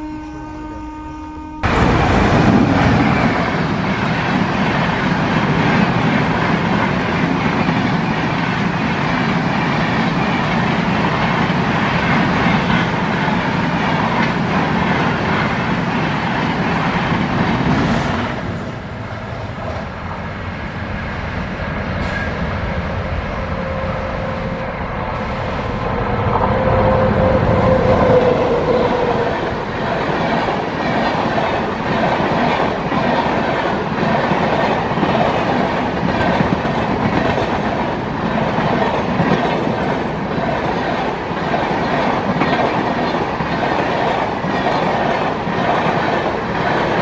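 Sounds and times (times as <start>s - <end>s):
approaching train rumble: 0.0s - 47.0s
train wheels rumbling on rail: 1.6s - 47.0s
coaches clickety-clack: 30.2s - 47.0s.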